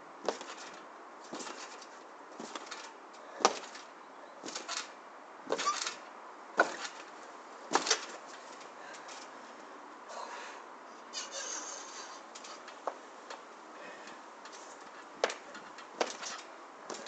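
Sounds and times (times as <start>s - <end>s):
scooter landing on trampoline: 0.2s - 4.9s, 5.5s - 7.1s, 7.7s - 9.2s, 14.5s - 17.0s.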